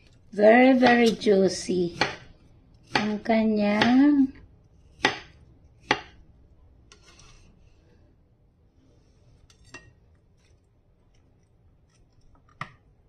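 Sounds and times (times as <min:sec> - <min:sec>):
knife slicing fruit: 0:01.9 - 0:04.1, 0:04.8 - 0:06.2.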